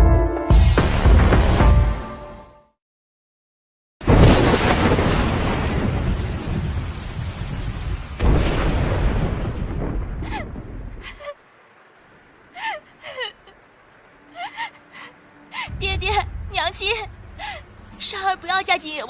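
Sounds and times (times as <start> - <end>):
thunder crack and rumble: 4.0 - 11.3, 15.7 - 18.4
woman sobbing: 10.2 - 11.4, 12.5 - 16.3.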